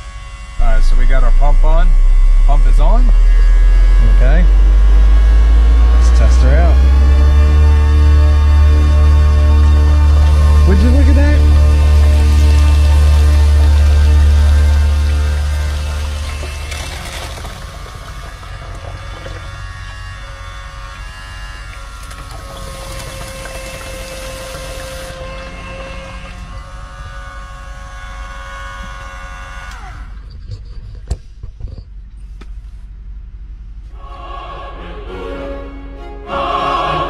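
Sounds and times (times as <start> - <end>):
water pump whining: 0.0 - 31.1
steady low hum: 0.0 - 37.0
water running into sink: 8.6 - 26.6.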